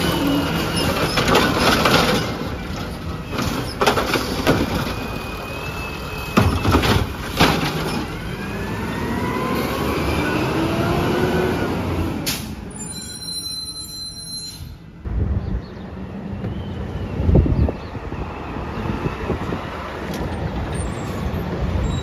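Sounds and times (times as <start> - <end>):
sharp knocks of cart: 0.8 - 5.2, 6.3 - 8.1
truck whine rising: 7.0 - 13.0.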